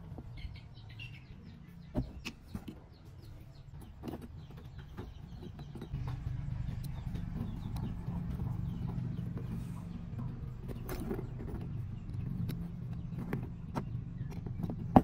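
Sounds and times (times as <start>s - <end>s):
low engine drone: 5.9s - 15.0s.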